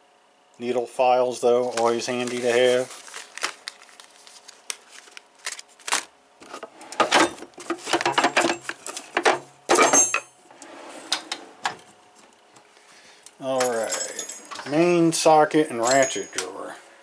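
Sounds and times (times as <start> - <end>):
metal toolbox clatters: 6.9 - 10.3.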